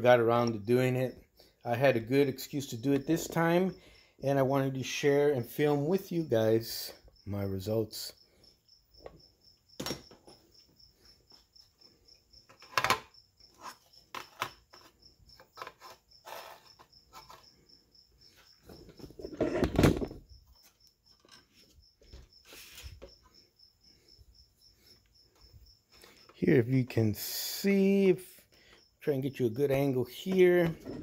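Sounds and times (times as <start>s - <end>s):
plastic parts clicking and tapping: 14.1s - 15.8s.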